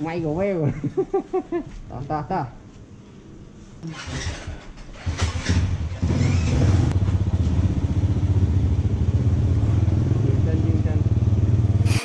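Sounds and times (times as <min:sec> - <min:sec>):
motorcycle engine running: 0:05.1 - 0:12.0.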